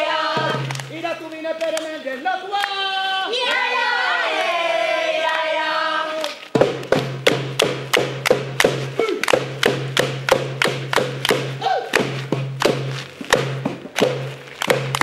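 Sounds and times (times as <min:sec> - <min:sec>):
percussive beat of sharp taps: 0:06.5 - 0:15.0.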